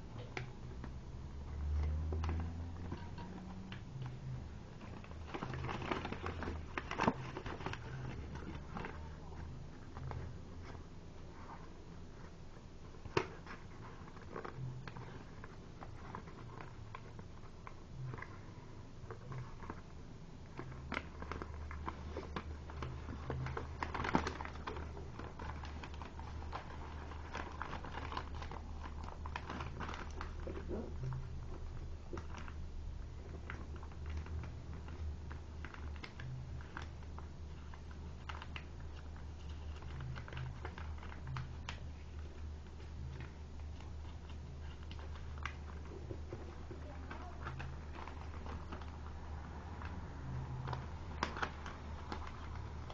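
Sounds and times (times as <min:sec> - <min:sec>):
low steady hum: 0:00.0 - 0:52.9
paper being folded and creased: 0:01.4 - 0:52.9.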